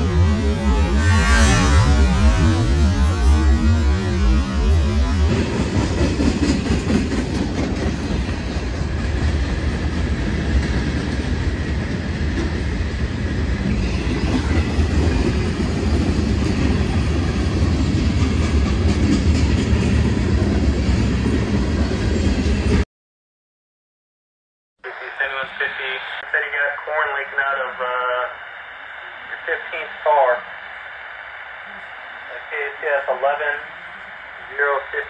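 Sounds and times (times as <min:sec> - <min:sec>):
train wheels rumbling on rails: 0:02.0 - 0:22.8.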